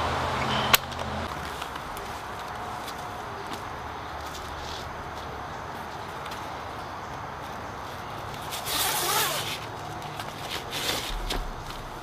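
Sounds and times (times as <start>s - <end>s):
strap webbing zipping through loop: 8.4s - 9.7s.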